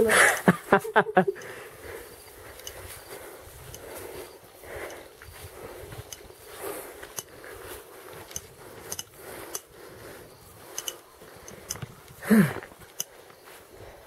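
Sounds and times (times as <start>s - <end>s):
footsteps on sandy path: 0.0s - 14.0s
small clicks and ticks: 1.3s - 1.6s, 2.3s - 13.5s.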